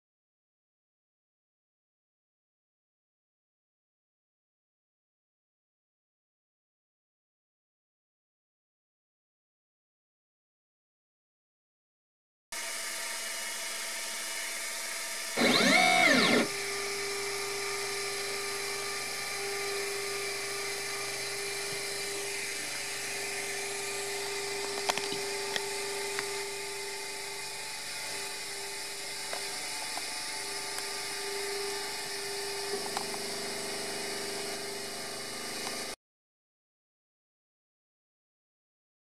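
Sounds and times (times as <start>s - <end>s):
printer fans whining: 15.4s - 26.6s.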